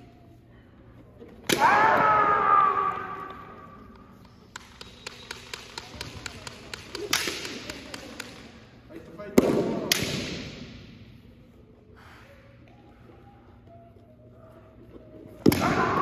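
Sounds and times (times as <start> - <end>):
loud drawn-out shout: 1.5 - 3.5
bamboo swords clacking: 4.2 - 8.6.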